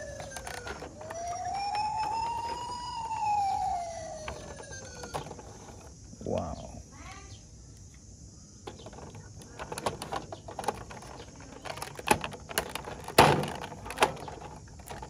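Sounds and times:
plastic toy clicks and knocks: 0.0s - 3.1s, 8.7s - 15.0s.

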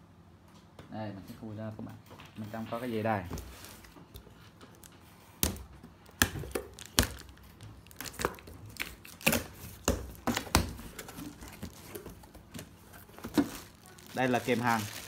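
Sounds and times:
cardboard clicks and knocks: 5.4s - 13.8s.

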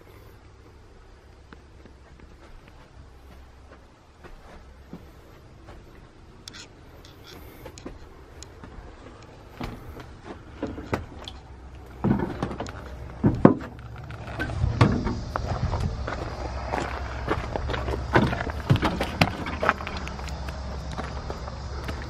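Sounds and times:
footsteps: 1.5s - 22.0s
heavy thuds: 7.8s - 20.2s
small knocks: 8.6s - 15.5s.

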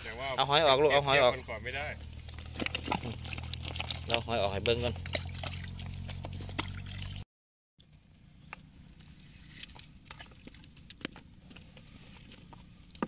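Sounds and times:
shrimp ticking and pattering: 1.7s - 7.2s, 7.9s - 13.0s.

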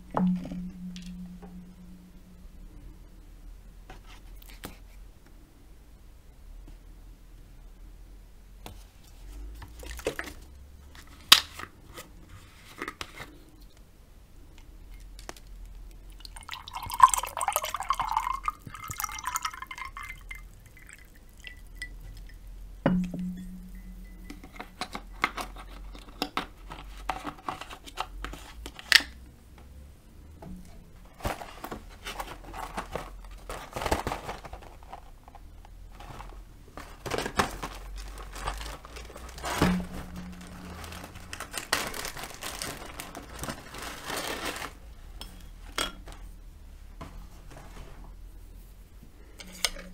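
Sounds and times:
low ringing knock: 0.1s - 2.4s, 22.9s - 24.3s
juice pouring into mug: 16.1s - 22.4s.

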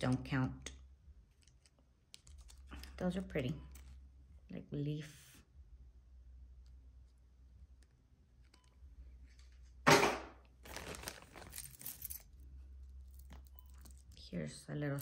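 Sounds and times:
metal jewelry rummaged: 1.3s - 3.0s, 10.6s - 15.0s
plastic bag crinkling: 10.6s - 12.2s.

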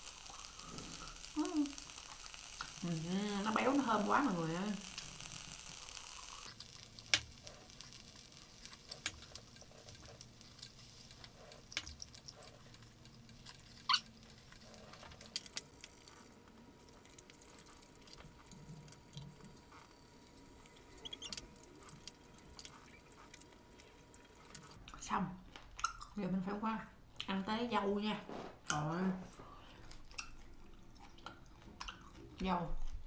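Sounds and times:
faint grill sizzle: 0.0s - 25.1s
wet chewing mouth sounds: 20.6s - 24.9s, 29.6s - 33.0s.

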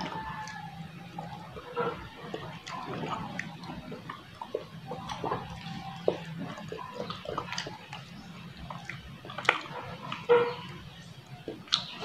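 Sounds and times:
wet chewing and lip smacking: 0.0s - 12.0s.

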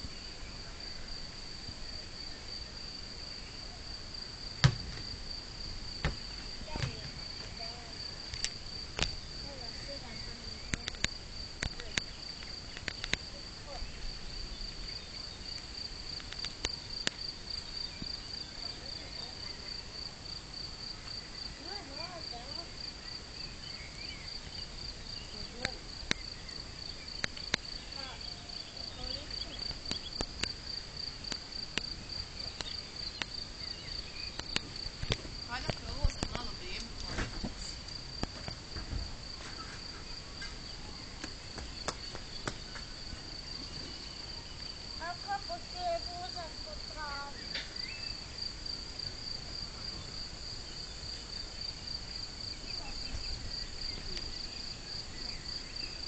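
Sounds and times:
crickets trilling: 0.0s - 56.0s
sharp clicks: 10.7s - 13.2s.

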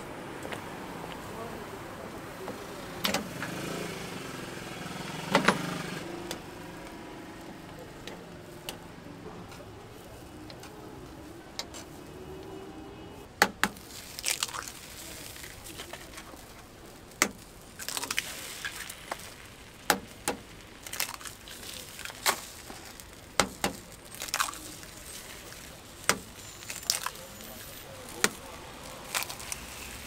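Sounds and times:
eggs cracking on metal: 13.4s - 27.2s
eggshell crunching: 13.6s - 30.0s.

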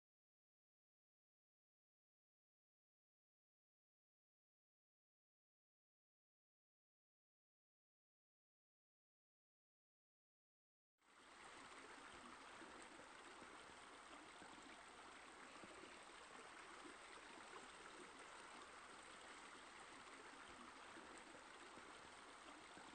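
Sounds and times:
faint running water: 11.0s - 22.9s.

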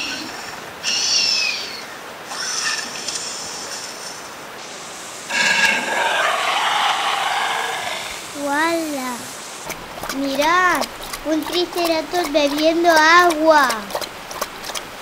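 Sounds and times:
dinosaur screeches: 5.3s - 8.2s
dinosaur roar: 5.3s - 8.3s.

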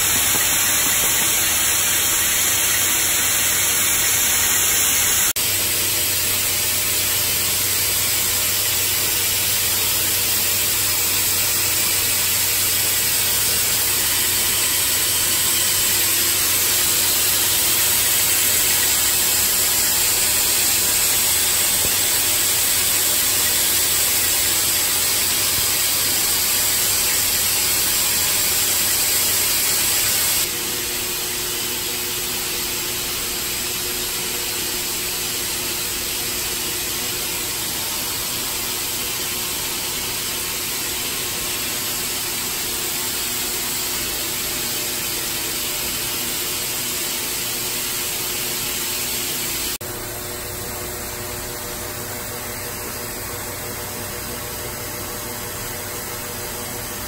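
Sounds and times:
hiss of venting gas: 0.0s - 5.4s, 7.1s - 30.5s.

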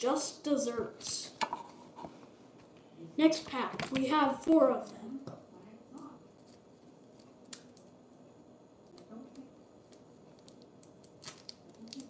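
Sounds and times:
plastic crinkling: 9.8s - 12.0s.

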